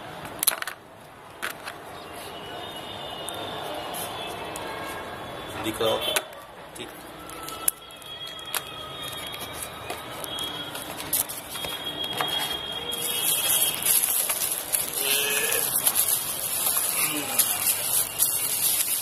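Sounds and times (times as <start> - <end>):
bubble wrap crinkling: 7.0 - 19.0.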